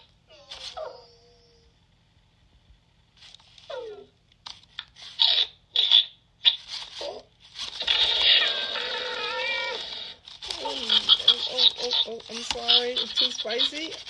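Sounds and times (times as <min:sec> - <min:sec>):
electronic crunchy chewing sounds: 0:05.1 - 0:06.7, 0:07.6 - 0:14.0.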